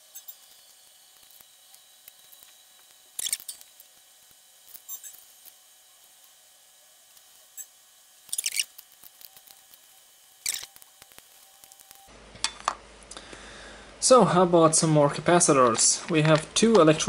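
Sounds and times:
electronic components clicking: 0.0s - 6.4s, 7.1s - 12.1s.

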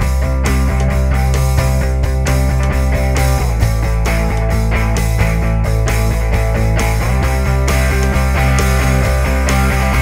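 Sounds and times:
instrumental music: 0.0s - 10.0s.

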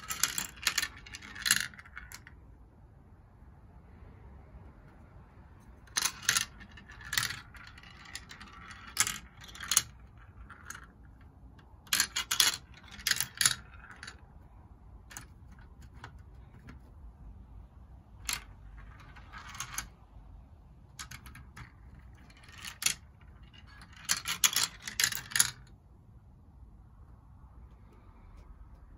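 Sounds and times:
marbles rattling down plastic run: 0.0s - 2.4s, 5.8s - 14.4s, 15.0s - 16.9s, 18.2s - 19.9s, 20.9s - 25.7s.

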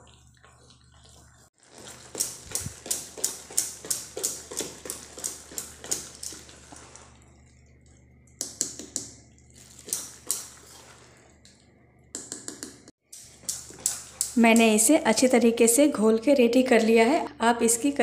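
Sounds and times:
whisk beating batter in pot: 0.0s - 11.3s, 13.1s - 15.0s.

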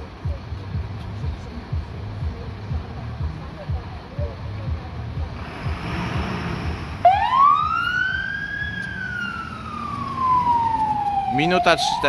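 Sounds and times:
fire engine siren wailing: 7.0s - 12.0s.

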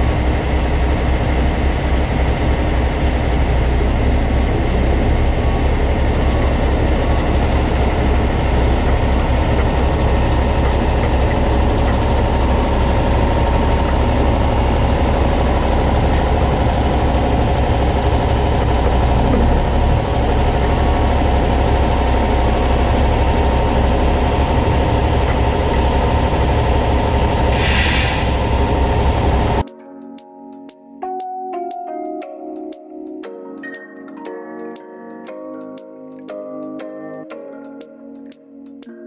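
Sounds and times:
diesel truck engine idling: 0.0s - 29.6s.

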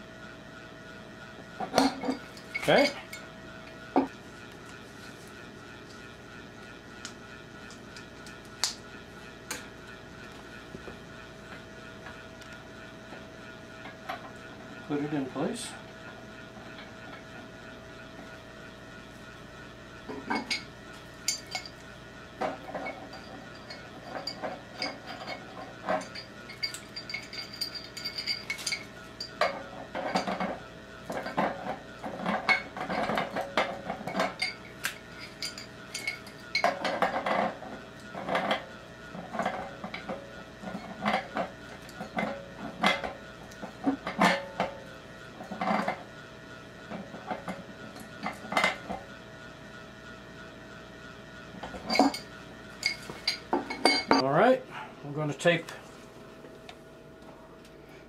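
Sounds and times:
metal fittings and tools clinking: 1.8s - 3.2s, 22.4s - 30.5s, 34.0s - 37.5s, 51.8s - 54.2s.

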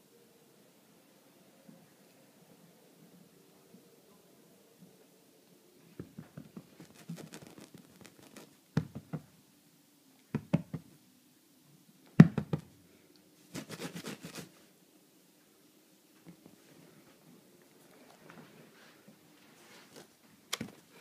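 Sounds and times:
kitten claws scratching and tapping: 6.3s - 8.6s.

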